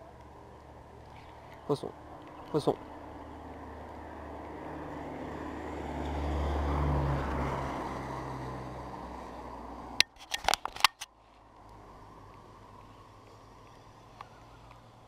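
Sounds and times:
vehicle passing with low rumble: 0.0 - 10.0, 11.1 - 15.0.

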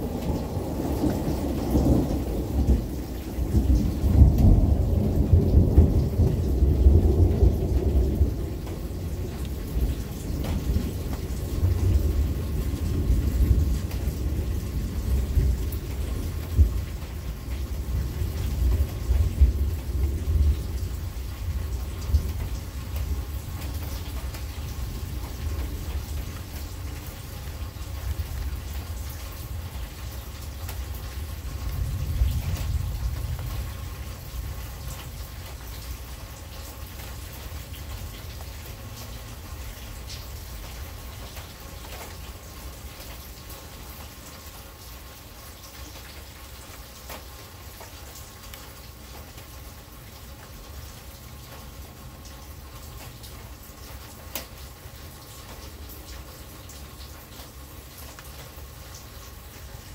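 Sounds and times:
thunder rumbling: 0.0 - 36.6
steady rain: 0.0 - 59.9.

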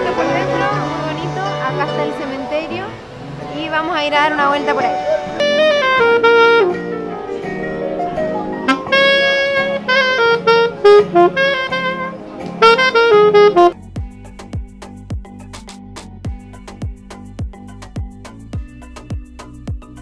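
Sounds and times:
low accompaniment: 0.0 - 15.3
quieter music: 0.0 - 20.0
saxophone jazzy melody: 3.8 - 13.9.

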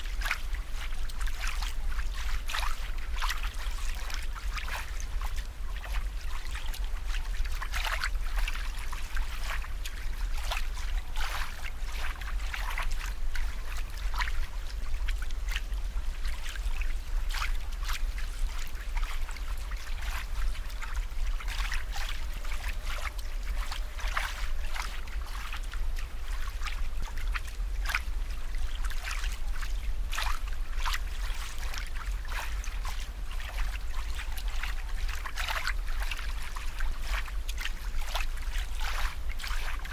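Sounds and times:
constant low hum: 0.0 - 39.9
water trickling and bubbling: 0.0 - 39.9.

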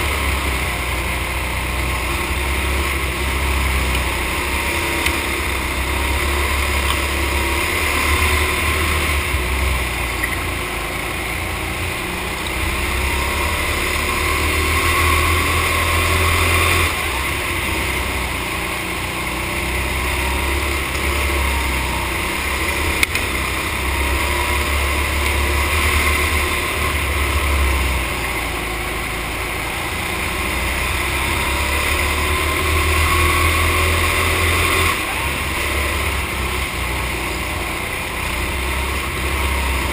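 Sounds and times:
go-kart engine racing: 0.0 - 39.9.

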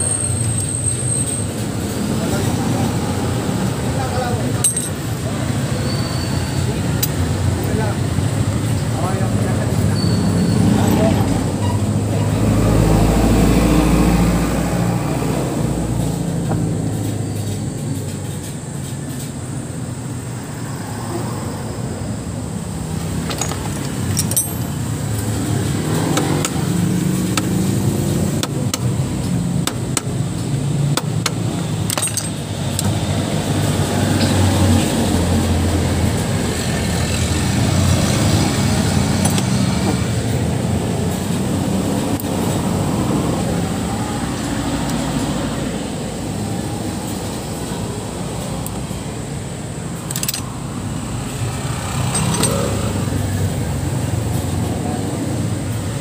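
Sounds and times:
engines rumbling: 0.0 - 56.0
metallic clicks of hand tools: 23.2 - 25.3, 28.4 - 33.0, 39.2 - 39.5, 50.0 - 50.5, 52.0 - 53.0.

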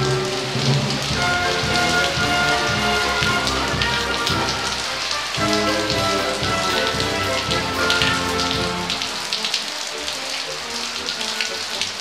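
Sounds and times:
rain falling on a patio: 0.0 - 12.0
background music with low beat: 1.0 - 8.9.

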